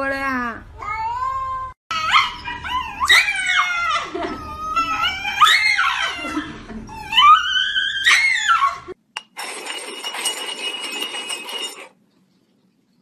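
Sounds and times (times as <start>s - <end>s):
dog howling: 1.9s - 6.4s, 7.0s - 9.0s.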